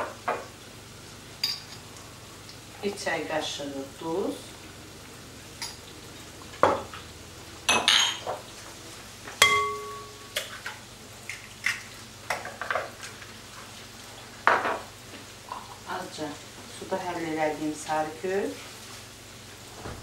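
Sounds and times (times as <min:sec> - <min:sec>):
ringing clink: 0:09.4 - 0:10.2
spoon tapping bowls and dishes: 0:09.4 - 0:10.5.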